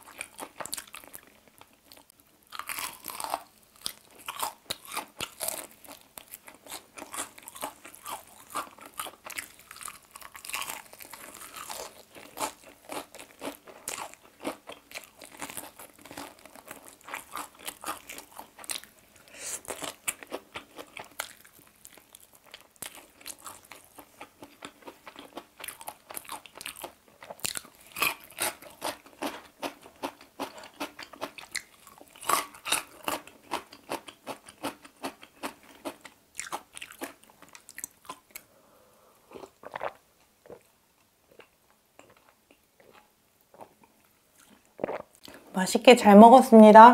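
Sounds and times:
crunching fried chicken: 0:00.0 - 0:38.5
wet chewing: 0:19.6 - 0:38.5, 0:39.3 - 0:40.7.

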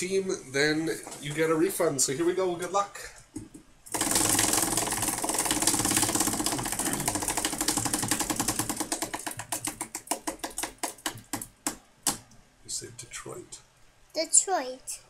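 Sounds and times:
prize wheel clicker ticking: 0:03.9 - 0:09.6.

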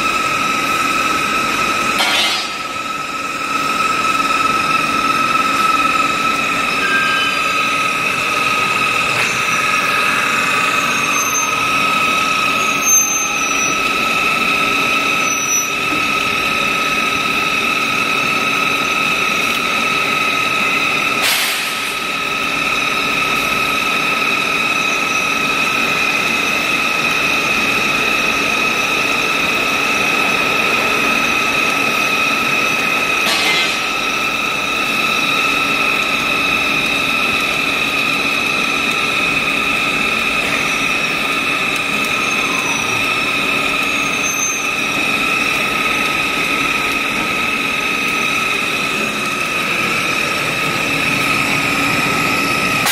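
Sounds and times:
peeling machine whine: 0:00.0 - 0:52.9
short high squeaks: 0:06.7 - 0:07.6, 0:09.2 - 0:11.7, 0:12.6 - 0:13.8.

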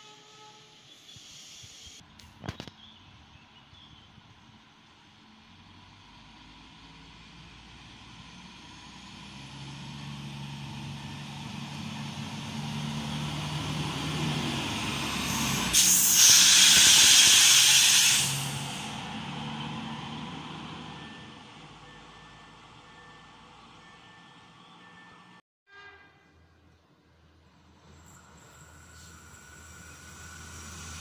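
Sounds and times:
train rushing hiss passing: 0:00.0 - 0:02.0, 0:13.6 - 0:19.6, 0:27.7 - 0:31.0
railcar engine hum: 0:00.0 - 0:31.0.

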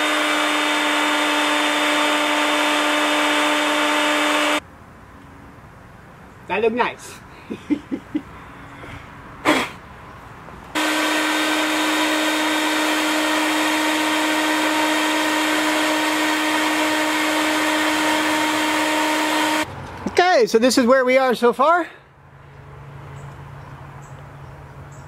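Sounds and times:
falling whistle: 0:10.8 - 0:19.6
router high whine: 0:10.8 - 0:19.6.

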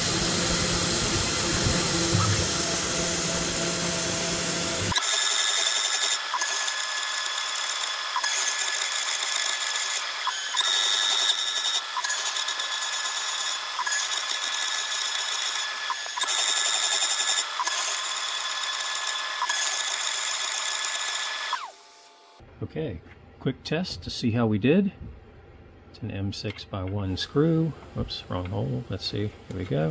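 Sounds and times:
cnc spindle whining: 0:00.0 - 0:22.3.

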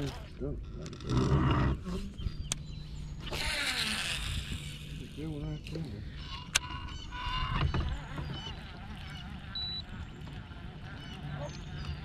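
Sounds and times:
birds honking: 0:05.6 - 0:12.0.

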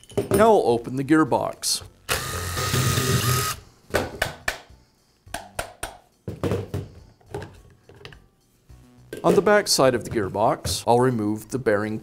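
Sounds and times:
impact driver running: 0:02.1 - 0:03.6.

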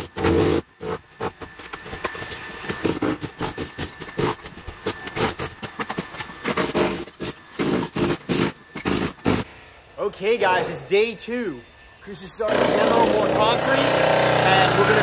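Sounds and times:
demolition hammer chipping concrete: 0:00.0 - 0:09.4, 0:12.5 - 0:15.0.

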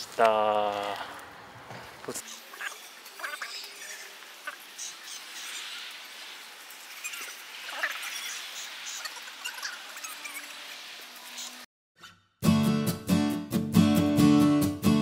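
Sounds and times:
outdoor background hiss: 0:00.0 - 0:11.7.

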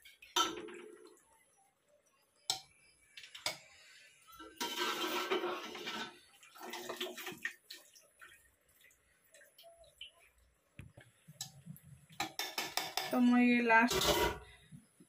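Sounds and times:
spoon scraping rice in a pot: 0:04.5 - 0:06.3
utensils knocking on a pot: 0:12.2 - 0:13.2.

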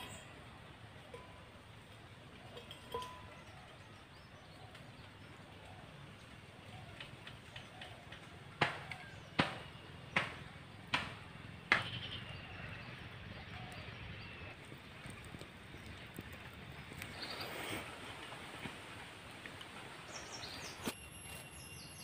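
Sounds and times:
sharp knocks: 0:08.6 - 0:12.1.

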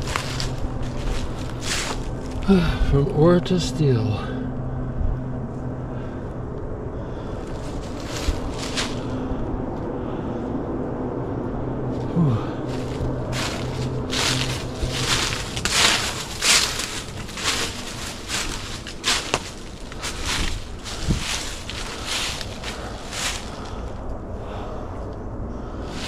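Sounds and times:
footsteps crunching dry leaves: 0:00.0 - 0:02.8, 0:07.4 - 0:09.3, 0:12.1 - 0:24.0
steady low hum: 0:00.0 - 0:26.0.

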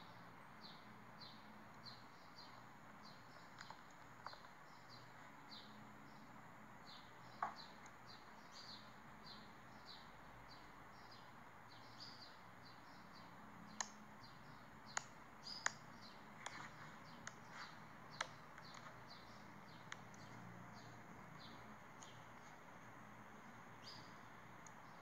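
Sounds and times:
high chirping: 0:00.6 - 0:25.0
click beetle clicking: 0:14.9 - 0:17.5.

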